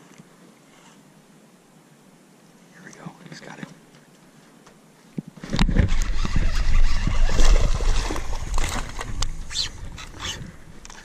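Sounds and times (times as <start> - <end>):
water sloshing and splashing: 5.4 - 10.4.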